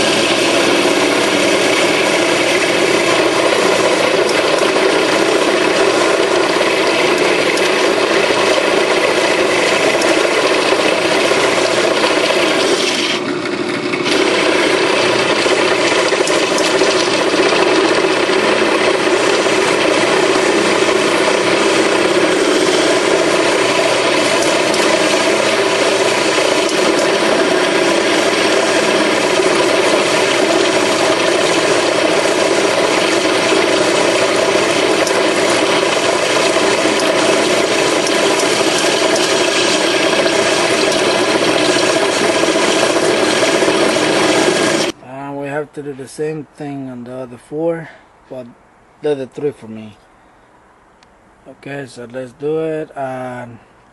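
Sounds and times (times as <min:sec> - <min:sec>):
drill bit grinding metal: 0:00.0 - 0:45.0.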